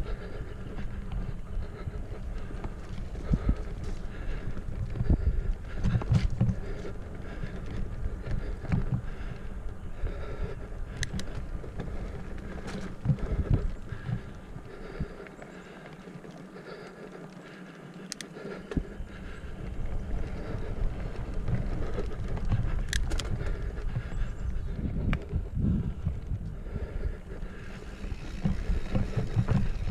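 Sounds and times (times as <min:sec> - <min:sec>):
bike tyres rumbling over dirt: 0:00.0 - 0:29.9
bike knocks and rattles: 0:05.8 - 0:06.8, 0:28.0 - 0:29.9
sharp clicks: 0:10.9 - 0:11.4, 0:17.9 - 0:18.8, 0:22.5 - 0:23.6.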